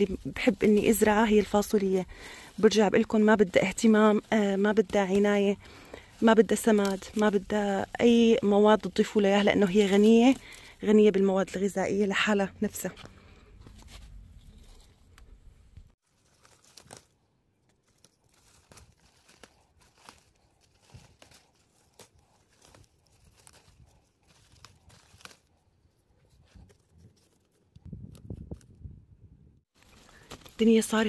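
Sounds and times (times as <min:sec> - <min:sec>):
leaves rustling: 0:00.0 - 0:12.4, 0:13.0 - 0:27.6, 0:29.8 - 0:31.0
bean pods snapping: 0:16.4 - 0:25.5.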